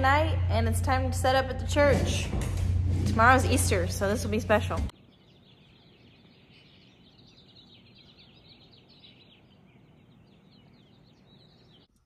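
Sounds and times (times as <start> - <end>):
low steady rumble: 0.0 - 5.0
small birds chirping: 4.5 - 12.0.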